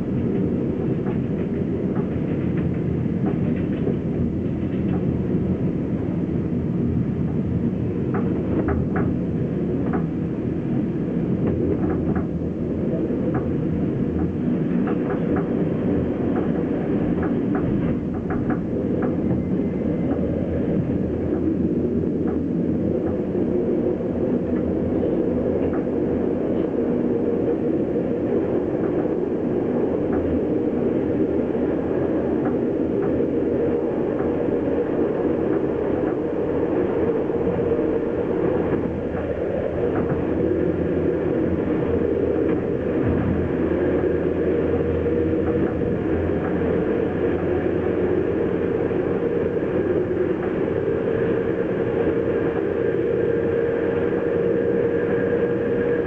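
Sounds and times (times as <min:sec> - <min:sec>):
train interior rumble: 0:00.0 - 0:56.0.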